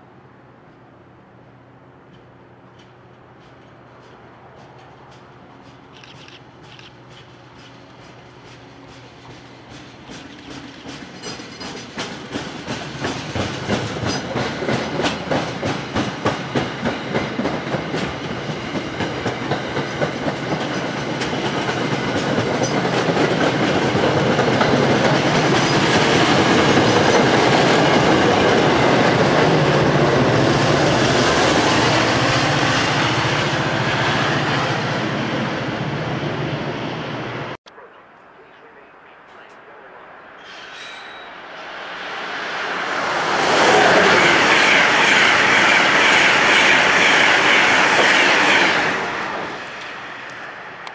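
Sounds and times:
train coaches rushing past: 0:00.0 - 0:37.6, 0:38.3 - 0:50.9
train wheels clickety-clack: 0:02.1 - 0:33.4, 0:43.2 - 0:50.9.

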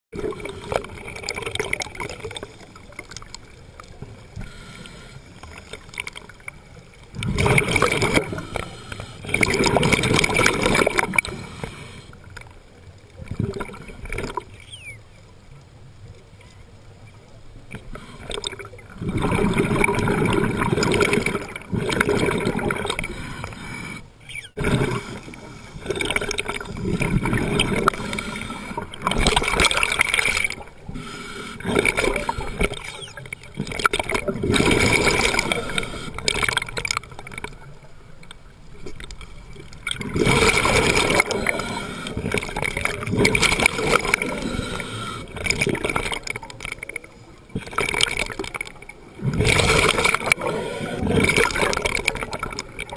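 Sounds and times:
underwater regulator bubbling exhalations: 0:07.2 - 0:12.0, 0:17.7 - 0:37.4, 0:39.9 - 0:46.9, 0:47.5 - 0:52.9.

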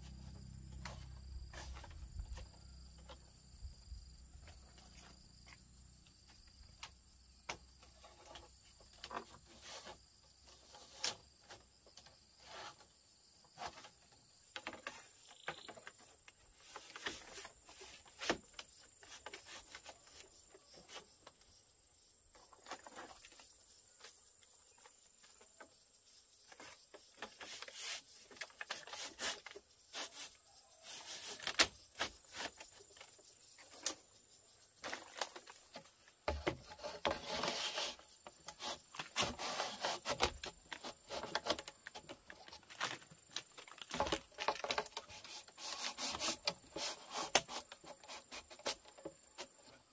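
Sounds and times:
insects trilling: 0:00.0 - 0:49.9
bamboo strips clicking and rubbing: 0:26.5 - 0:34.0, 0:34.8 - 0:49.6.

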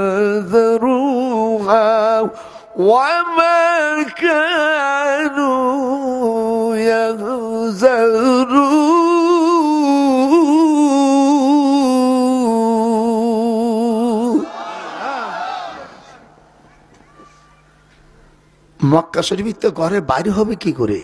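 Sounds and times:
man chanting: 0:00.0 - 0:14.5.

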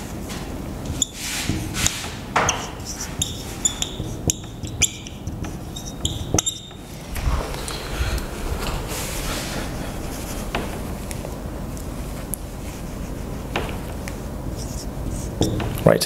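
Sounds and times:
hand rubbing whiteboard: 0:00.0 - 0:15.8
marker squeaking on whiteboard: 0:00.9 - 0:07.9, 0:09.8 - 0:11.2, 0:12.3 - 0:15.8.

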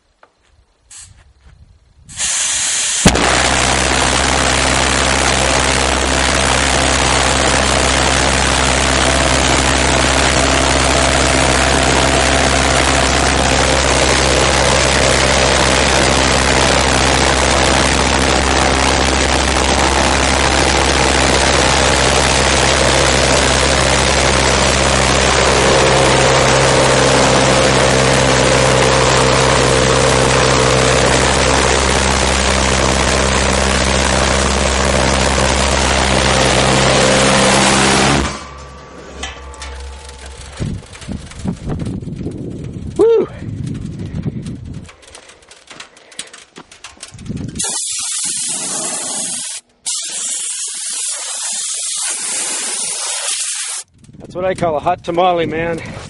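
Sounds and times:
brief hiss: 0:00.8 - 0:01.3, 0:02.1 - 0:03.1
pulsejet engine droning: 0:02.3 - 0:54.2
sharp bang: 0:03.0 - 0:29.8, 0:32.8 - 0:43.0.

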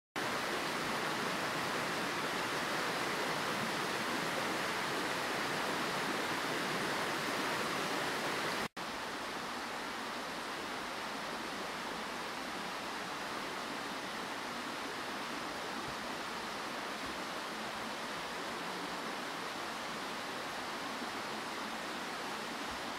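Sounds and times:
small stream rushing: 0:00.2 - 0:22.9.

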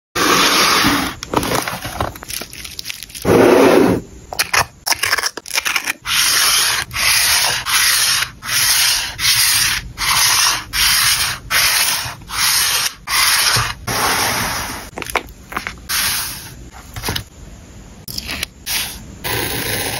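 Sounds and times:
card scraping over paper: 0:00.2 - 0:02.1, 0:06.1 - 0:17.2.

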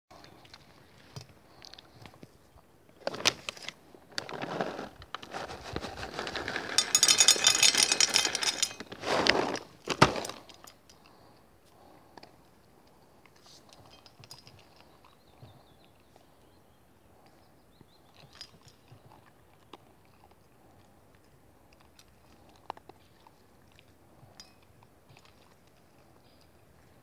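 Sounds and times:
dog crunching dry kibble: 0:03.0 - 0:12.3, 0:19.0 - 0:24.2.

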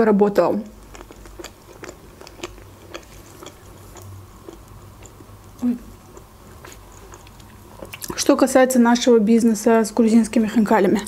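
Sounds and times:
chewing with wet mouth clicks: 0:00.8 - 0:08.2.

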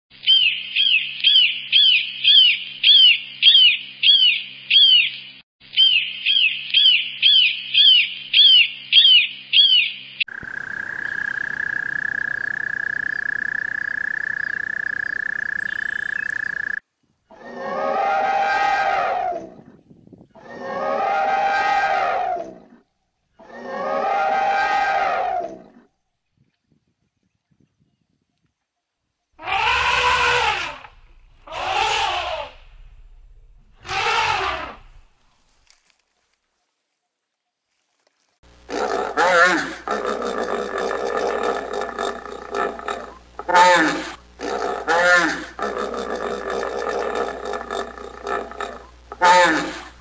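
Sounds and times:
bird of prey calling: 0:05.8 - 0:16.8
toad trilling: 0:10.3 - 0:16.8, 0:38.7 - 0:50.0
long drawn-out animal calls: 0:10.3 - 0:19.3, 0:29.4 - 0:30.9, 0:31.5 - 0:32.6, 0:33.8 - 0:34.9, 0:38.7 - 0:50.0.

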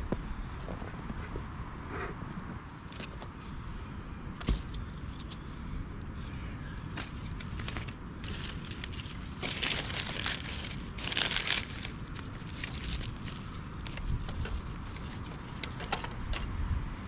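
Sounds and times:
steady low rumble: 0:00.0 - 0:17.0
kindling crunching and rustling: 0:06.8 - 0:16.5.

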